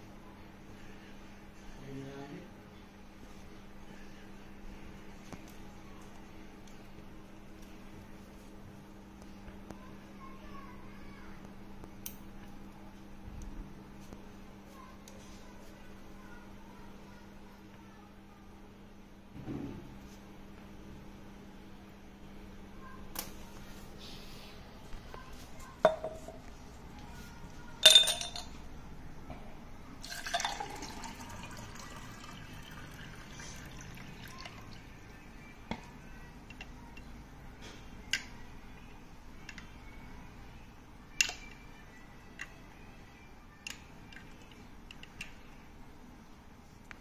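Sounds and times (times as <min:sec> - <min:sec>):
stone clinking on glass: 0:27.8 - 0:28.5
water pouring into a glass: 0:30.0 - 0:34.9.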